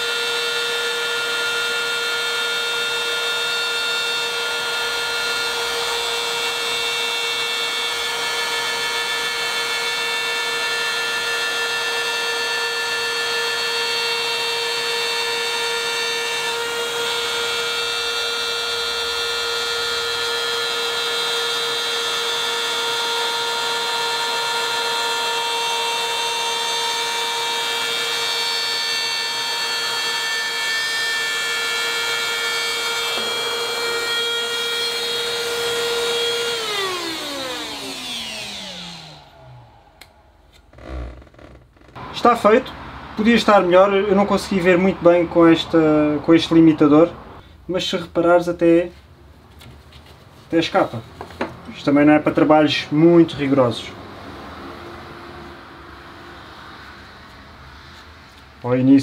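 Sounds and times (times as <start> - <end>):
dust extraction vacuum: 0.0 - 41.2
drywall cutter high whine: 0.0 - 47.4.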